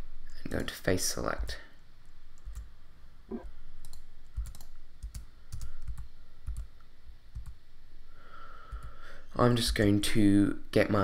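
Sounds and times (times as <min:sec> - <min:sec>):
keyboard and mouse clicks: 0:03.3 - 0:06.7.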